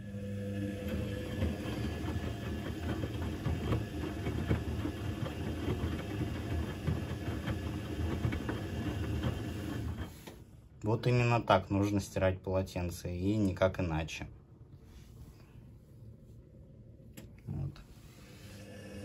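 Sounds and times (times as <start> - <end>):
washing machine drum motor humming: 0.0 - 10.5.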